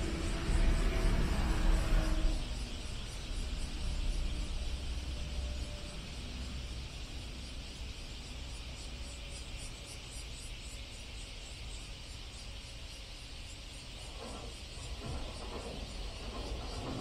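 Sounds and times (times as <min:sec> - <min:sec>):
rough noise: 0:00.0 - 0:05.0
insects chirping: 0:00.0 - 0:17.0.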